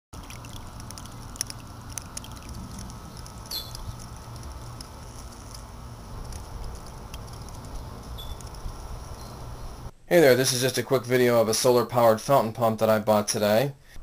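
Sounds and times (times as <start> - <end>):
droplet ticks: 0.2 - 9.3
low rumble: 0.3 - 9.9.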